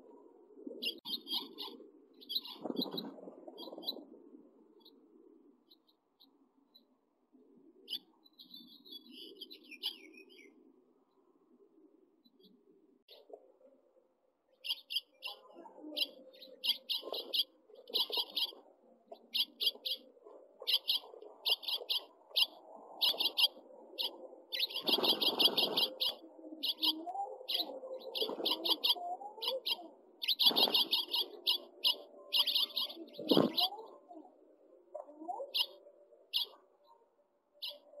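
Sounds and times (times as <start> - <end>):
young finches chirping: 16.0 - 18.6, 19.4 - 33.8, 36.3 - 36.6
wing flutters and nest rustling: 20.6 - 26.2, 30.2 - 33.8.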